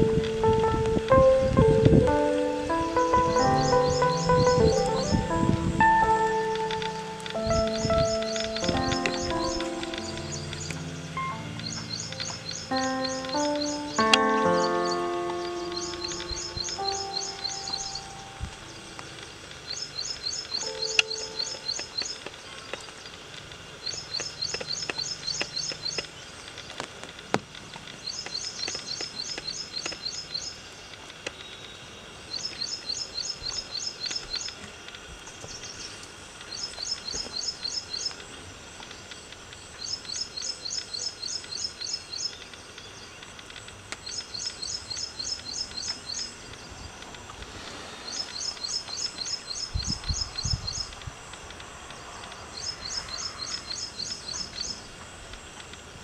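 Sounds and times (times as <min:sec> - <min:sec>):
faint outdoor background: 0:00.0 - 0:56.0
bird chirping trill: 0:01.2 - 0:22.8.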